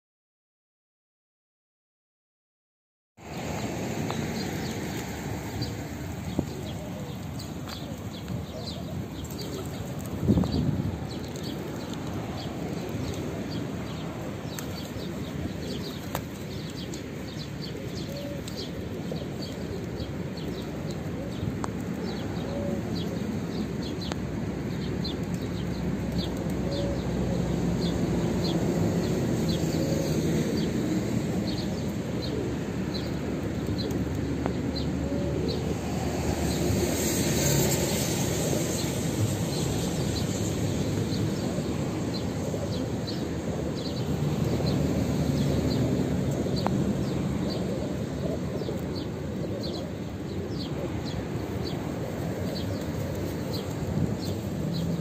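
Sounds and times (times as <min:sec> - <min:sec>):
outdoor background noise: 0:03.2 - 0:55.0
pigeon wings flapping: 0:04.2 - 0:21.2, 0:51.5 - 0:54.8.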